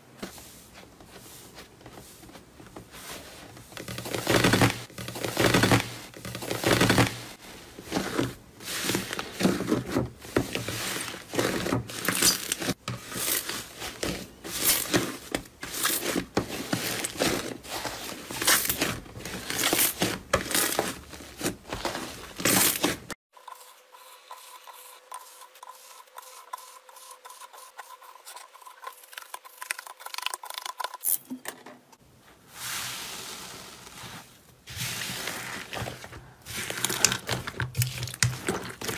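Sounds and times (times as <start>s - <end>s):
slime squelching and popping: 36.5s - 38.9s.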